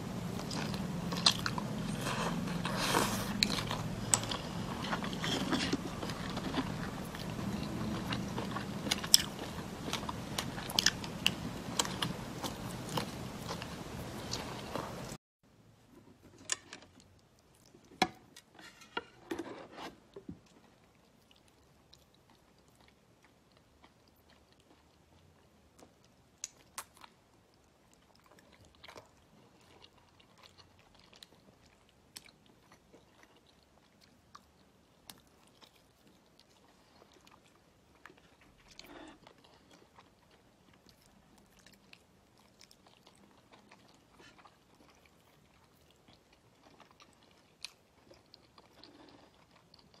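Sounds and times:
person chewing with mouth clicks: 0.2 - 15.1.

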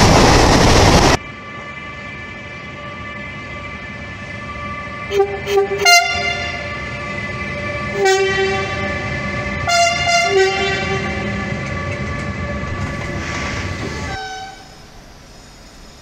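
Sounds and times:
locomotive whine: 0.0 - 16.0
locomotive horn blasts: 4.4 - 13.0, 14.0 - 14.8.

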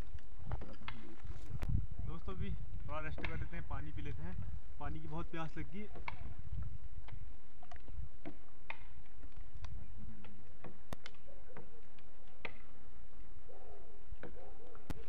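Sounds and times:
wind buffeting microphone: 0.0 - 10.4.

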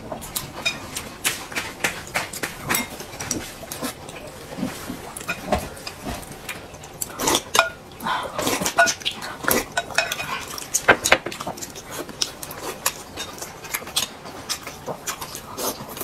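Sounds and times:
cutlery clinking on plates: 2.6 - 3.5, 7.3 - 7.8, 8.7 - 9.1, 9.7 - 11.4.

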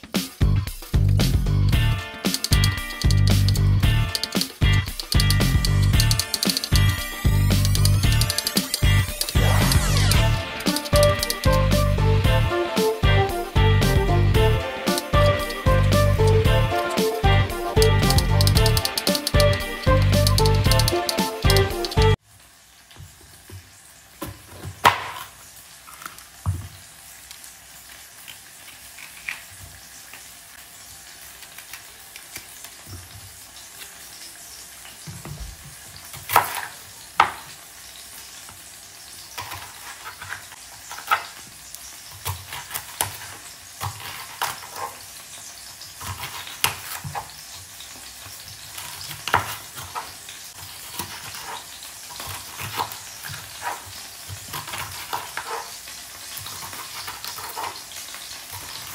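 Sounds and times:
spoon stirring food in bowl: 4.1 - 9.9, 10.6 - 11.5, 17.8 - 22.0.

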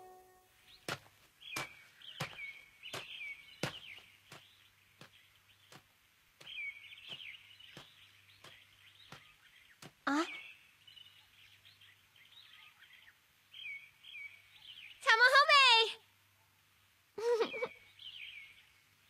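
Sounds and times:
small birds chirping: 0.0 - 19.0
footsteps walking slowly: 0.7 - 10.1.

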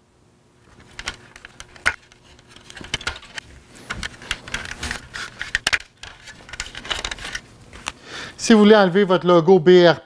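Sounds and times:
plastic parts knocking: 0.8 - 7.4.

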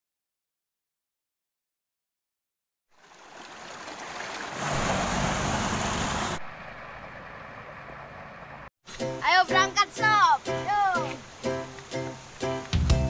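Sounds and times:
waterfall splashing into stream: 2.9 - 7.2.

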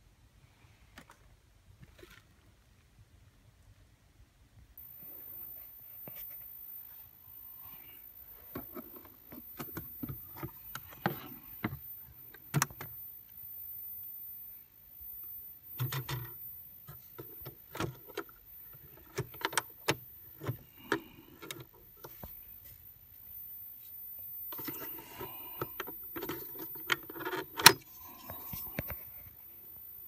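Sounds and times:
tape recorder controls clicking: 8.5 - 13.0, 15.8 - 22.2, 24.5 - 29.0.

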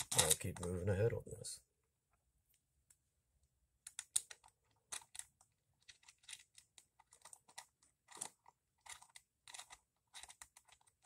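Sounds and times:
small metal parts clicking: 0.0 - 0.7, 3.8 - 11.0.

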